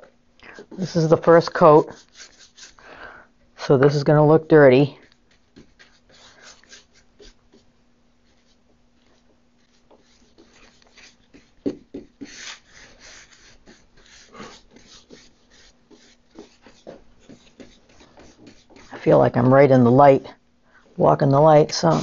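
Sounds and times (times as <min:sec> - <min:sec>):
faint steady hum: 0:00.0 - 0:22.0
paintbrush scratching and swishing: 0:00.6 - 0:02.8, 0:04.9 - 0:19.2, 0:21.6 - 0:22.0.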